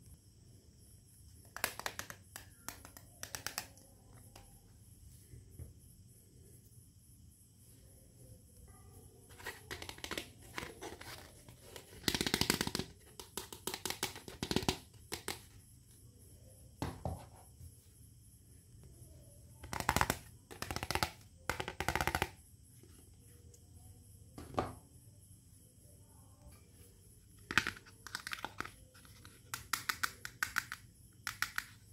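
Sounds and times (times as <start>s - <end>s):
plastic toy pieces clicking and rattling: 27.4s - 31.8s.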